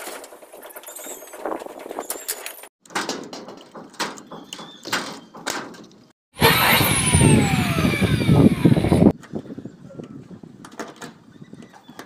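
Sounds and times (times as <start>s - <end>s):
electric drill driving into steel: 6.4s - 9.1s.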